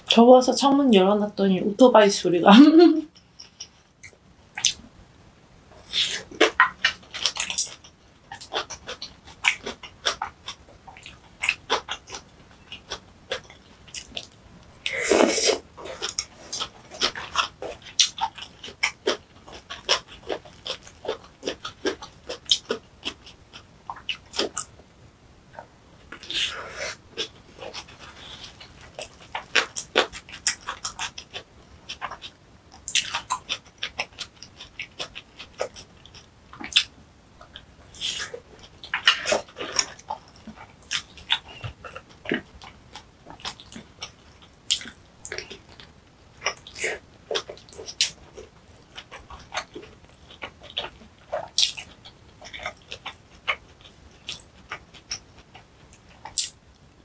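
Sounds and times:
wet chewing and lip smacks: 3.2s - 4.8s, 27.2s - 56.9s.

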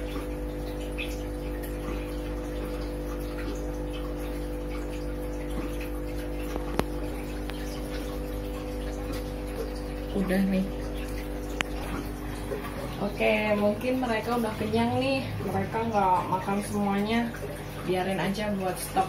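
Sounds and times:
aquarium filter hum: 0.0s - 19.0s
water trickling and dripping: 0.0s - 19.0s.

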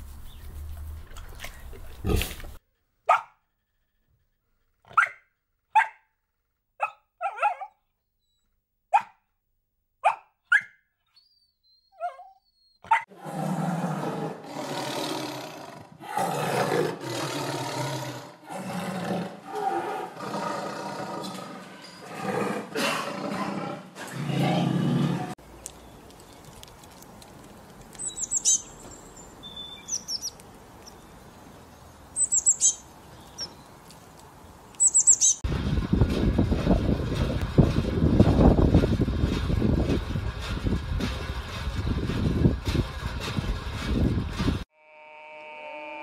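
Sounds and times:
tiger growling and roaring: 13.1s - 25.4s.

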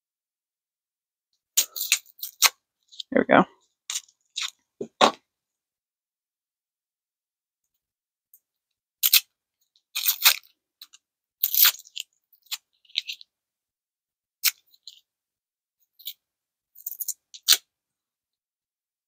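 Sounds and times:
candy wrapper crinkling: 1.6s - 3.1s, 9.0s - 13.3s.

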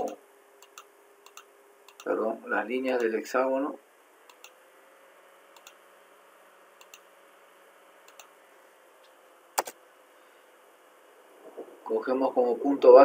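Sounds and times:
computer mouse clicks: 0.0s - 2.1s, 4.3s - 4.6s, 5.6s - 5.8s, 6.8s - 7.1s, 8.1s - 8.3s
quiet room hiss: 0.0s - 13.0s.

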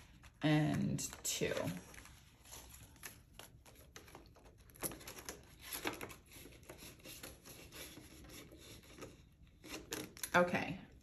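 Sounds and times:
banknotes rustling: 0.0s - 10.2s.

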